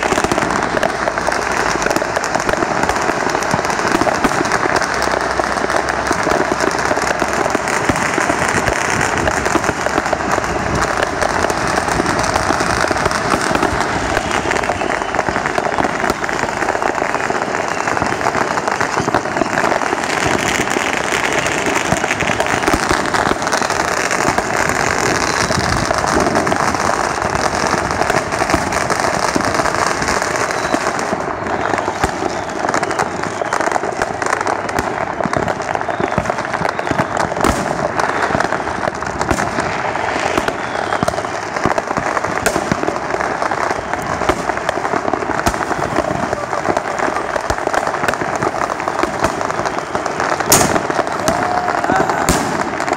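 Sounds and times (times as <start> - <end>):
firecrackers crackling: 0.0 - 52.9
firework shells banging: 36.2 - 52.9.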